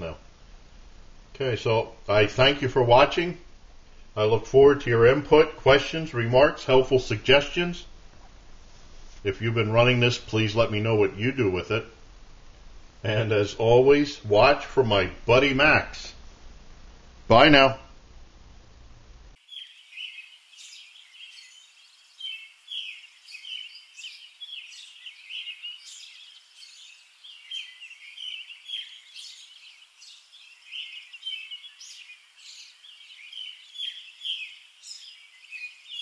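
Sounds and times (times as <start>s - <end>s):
birds chirping and singing: 19.4s - 36.0s.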